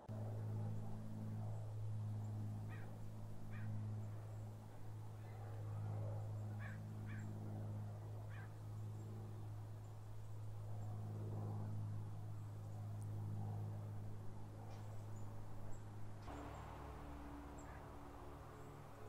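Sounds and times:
steady low hum: 0:00.0 - 0:19.0
bird calling: 0:08.3 - 0:08.6.

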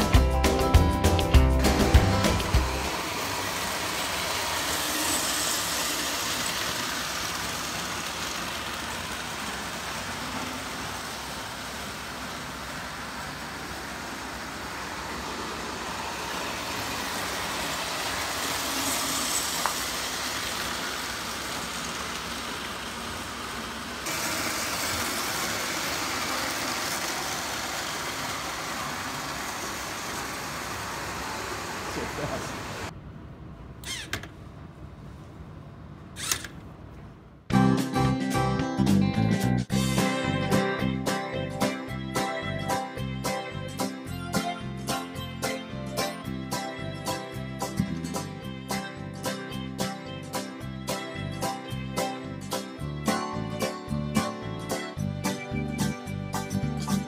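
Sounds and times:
model train whirring rumble: 0:00.0 - 0:32.9.

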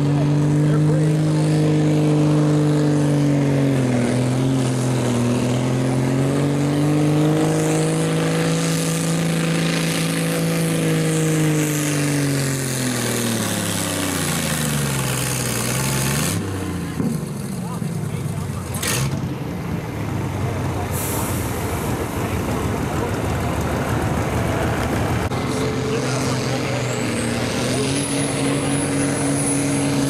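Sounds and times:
tractor engine running flat out: 0:08.2 - 0:30.0.

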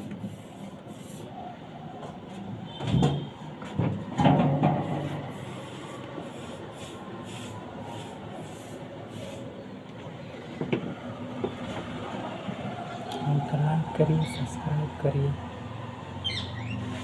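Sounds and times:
paintbrush scratching on wall: 0:00.0 - 0:01.4, 0:04.7 - 0:09.6
steady background noise: 0:00.0 - 0:17.0.

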